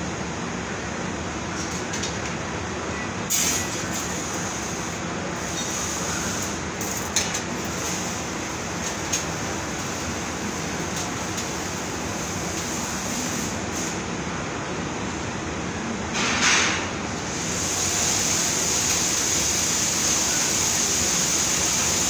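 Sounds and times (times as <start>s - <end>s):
machinery and ventilation noise: 0.0s - 22.0s
burst of hiss: 3.3s - 6.5s, 11.5s - 14.0s, 17.3s - 22.0s.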